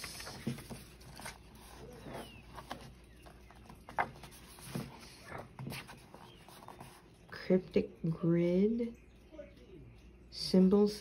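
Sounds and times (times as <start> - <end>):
book pages rustling: 0.0 - 7.1.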